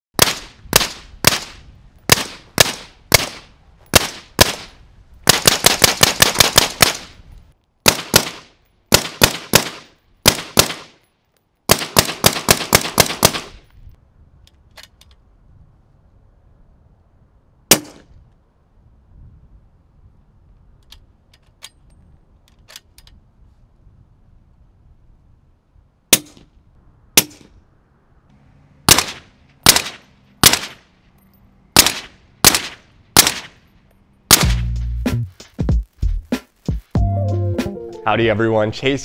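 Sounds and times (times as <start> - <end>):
suppressed rifle shots: 28.9 - 30.8, 31.8 - 33.6, 34.3 - 34.6.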